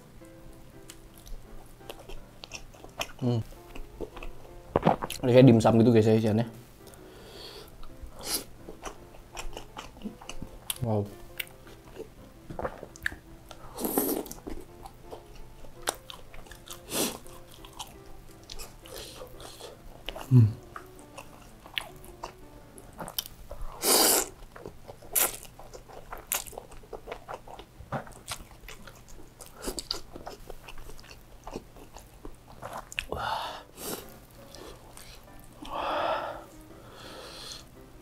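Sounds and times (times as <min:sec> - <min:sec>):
chewing with crunchy mouth clicks: 0:00.8 - 0:05.2, 0:08.7 - 0:23.6, 0:24.2 - 0:33.1
biting into fried food: 0:22.9 - 0:33.1
slurping noodles: 0:23.8 - 0:24.4.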